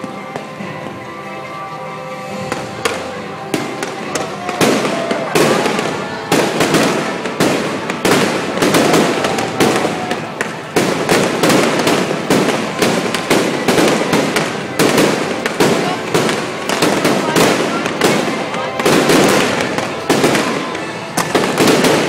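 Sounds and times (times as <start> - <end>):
fireworks bangs: 0.0 - 22.0.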